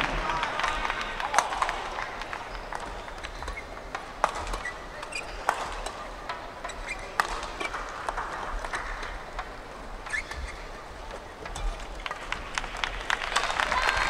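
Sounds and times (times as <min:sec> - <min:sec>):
sports hall background noise: 0:00.0 - 0:14.0
brief high squeaks: 0:10.0 - 0:10.7.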